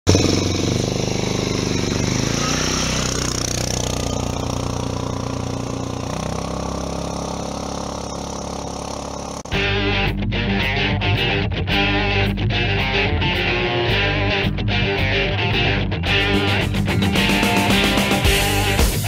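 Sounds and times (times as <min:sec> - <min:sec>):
quad bike engine passing: 0:00.1 - 0:10.1, 0:15.0 - 0:18.8.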